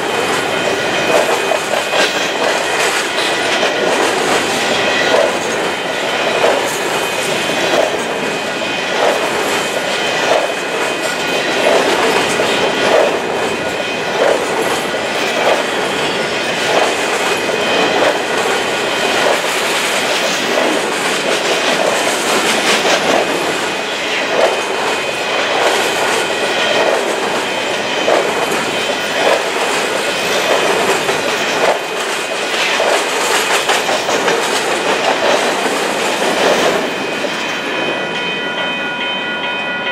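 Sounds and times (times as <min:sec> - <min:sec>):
train wheels clickety-clack: 0:00.0 - 0:39.2
train rumble and rush: 0:00.0 - 0:39.9
steady high ring: 0:36.9 - 0:39.9.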